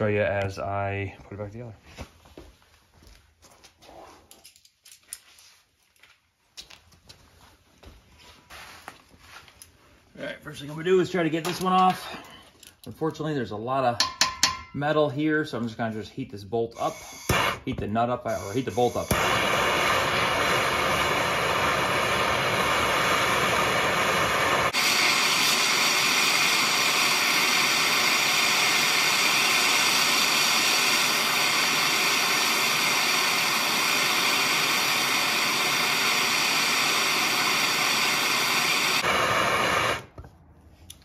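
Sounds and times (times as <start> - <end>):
gas torch flame hissing: 16.7 - 40.2.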